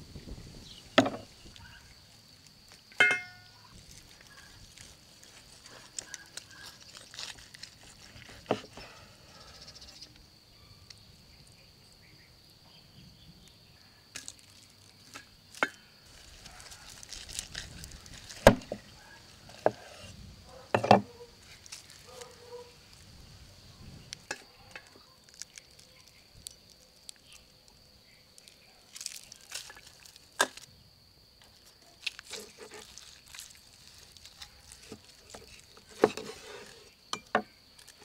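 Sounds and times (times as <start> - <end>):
metallic clang: 3.0 - 3.6.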